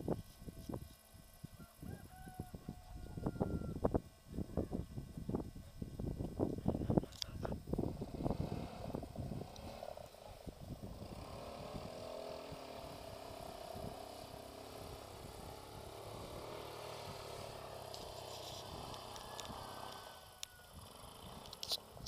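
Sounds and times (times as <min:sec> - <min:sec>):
distant quad bike engine: 0:00.0 - 0:22.0
low rumbling on microphone: 0:02.3 - 0:17.8.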